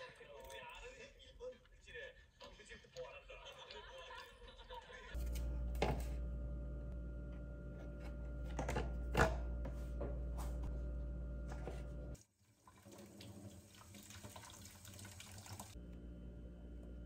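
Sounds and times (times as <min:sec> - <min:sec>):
low steady hum: 0:05.2 - 0:12.2, 0:15.8 - 0:17.0
tap water running into sink: 0:12.6 - 0:15.8.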